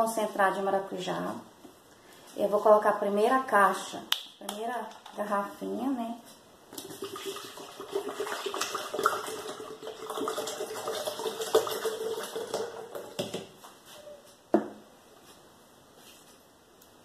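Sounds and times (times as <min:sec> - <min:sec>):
liquid pouring into blender jar: 0:06.7 - 0:13.4.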